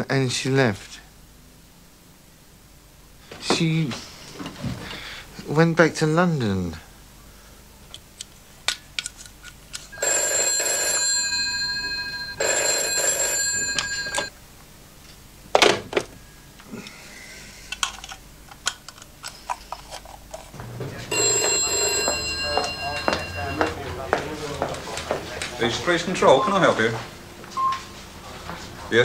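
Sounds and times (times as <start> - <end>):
telephone bell ringing: 10.0 - 14.3, 20.9 - 24.7.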